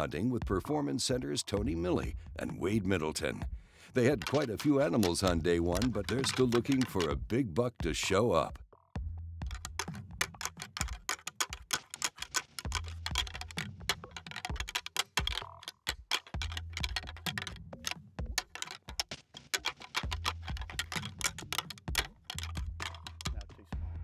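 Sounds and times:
fast clicking percussion: 0:04.0 - 0:07.4, 0:09.4 - 0:23.7
pulsing bass: 0:22.0 - 0:24.0.

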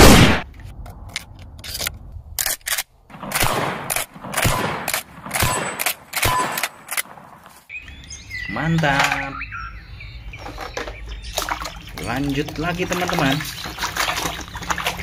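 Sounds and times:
shotgun shots: 0:00.0 - 0:00.5, 0:03.1 - 0:07.4
shells loading metallic clicks: 0:00.8 - 0:04.1.

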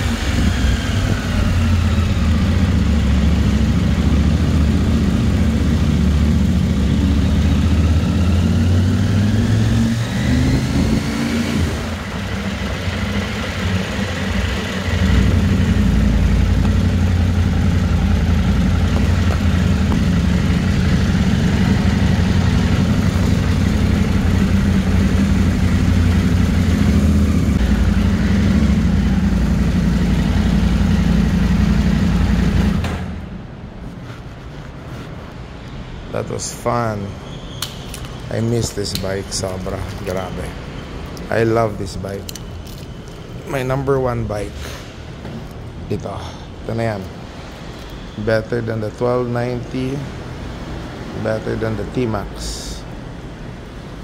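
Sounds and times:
motorcycle engine running: 0:00.0 - 0:33.2.

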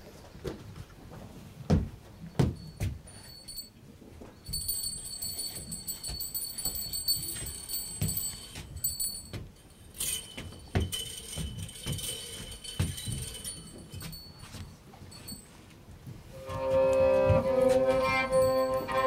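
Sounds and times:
cloth rustling and scraping: 0:14.4 - 0:19.0.

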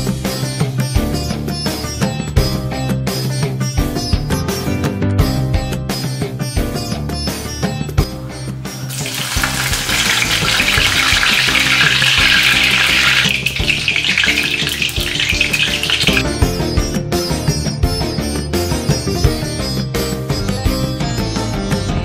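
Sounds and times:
background music: 0:00.0 - 0:22.0
leaves sizzling in hot oil: 0:08.9 - 0:16.2.

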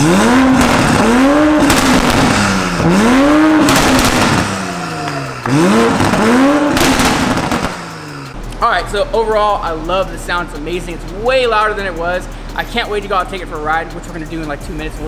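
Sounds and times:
car engine revving: 0:00.0 - 0:15.0
exhaust crackle: 0:00.0 - 0:15.0.

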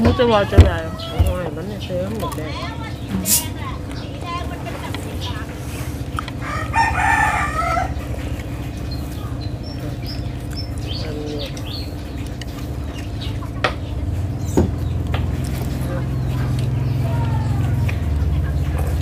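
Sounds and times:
steady low hum: 0:00.0 - 0:19.0
rooster crowing: 0:06.4 - 0:08.2.

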